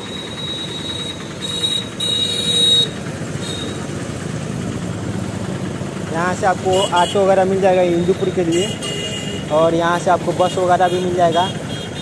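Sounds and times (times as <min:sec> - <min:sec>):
road traffic passing: 0:00.0 - 0:12.0.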